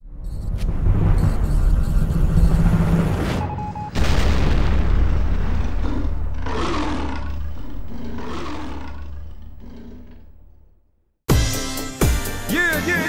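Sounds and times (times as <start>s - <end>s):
low rumble: 0.0s - 10.9s
deep boom: 3.9s - 7.9s
roar-like swells: 4.0s - 10.8s.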